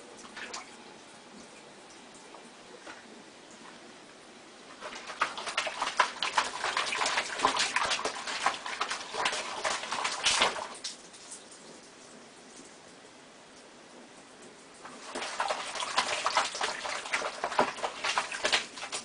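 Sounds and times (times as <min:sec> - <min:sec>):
paw splashing in dishwater: 0:04.7 - 0:11.5, 0:14.8 - 0:19.0.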